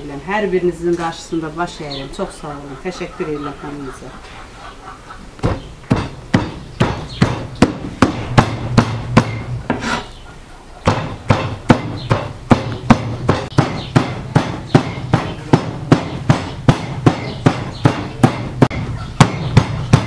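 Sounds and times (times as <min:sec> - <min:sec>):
cleaver chopping meat on wood: 0:05.4 - 0:09.9, 0:10.8 - 0:20.0.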